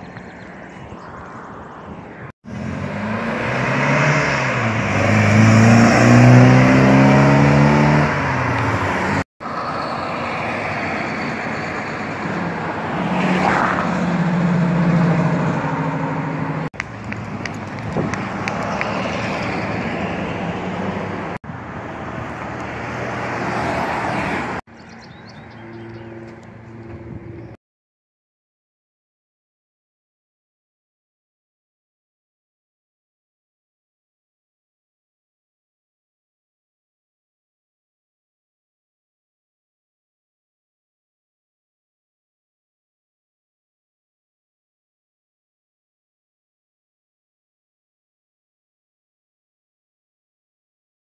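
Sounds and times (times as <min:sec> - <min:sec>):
traffic noise: 0:00.0 - 0:27.6
car engine accelerating: 0:02.5 - 0:21.4
car driving off: 0:02.5 - 0:27.6
v eight engine accelerating: 0:02.5 - 0:27.6.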